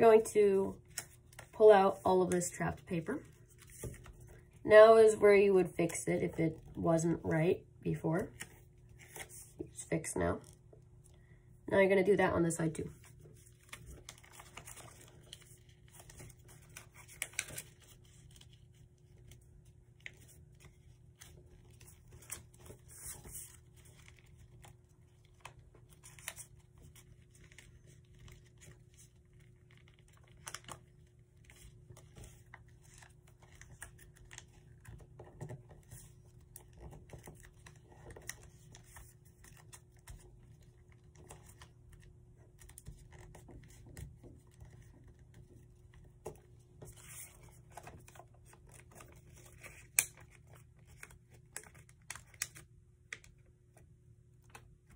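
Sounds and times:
faint steady hum: 0.0s - 54.9s
paper rustling and crinkling: 3.2s - 4.6s, 12.9s - 53.4s.

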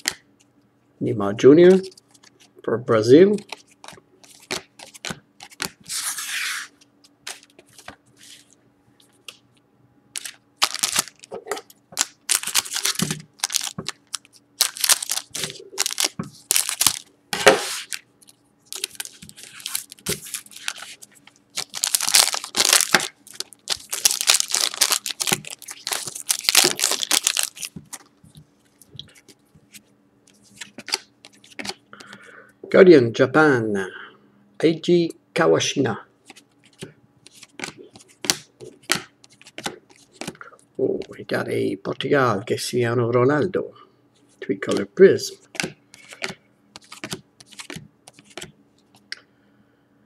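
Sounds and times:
cards being handled: 3.3s - 9.4s, 10.2s - 11.4s, 12.0s - 32.2s, 36.3s - 40.4s, 45.5s - 49.1s
foil wrapper crinkling and tearing: 10.2s - 11.3s, 12.0s - 28.1s.

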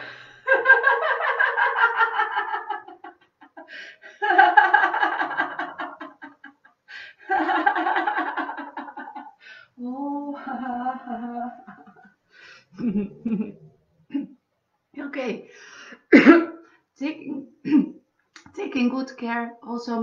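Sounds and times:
woman laughing: 0.5s - 6.7s, 7.3s - 9.5s, 10.3s - 12.1s, 12.8s - 14.4s.

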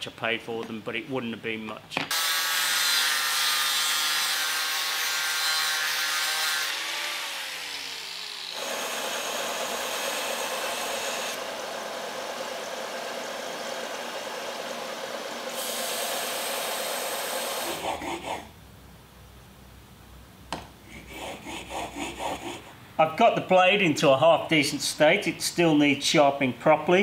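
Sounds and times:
angle grinder cutting steel: 2.1s - 18.4s
belt sander grinding: 2.1s - 18.4s.

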